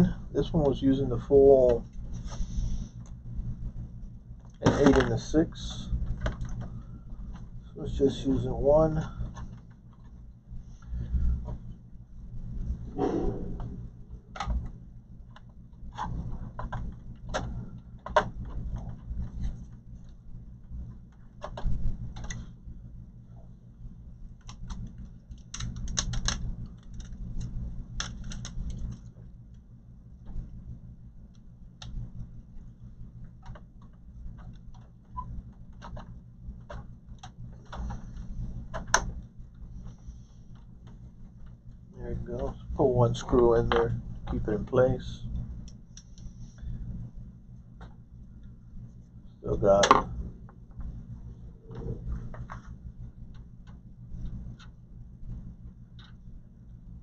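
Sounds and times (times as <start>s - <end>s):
steady low hum: 0.0s - 57.0s
computer parts clicks and rattles: 4.4s - 10.2s, 24.3s - 29.6s, 33.3s - 45.0s.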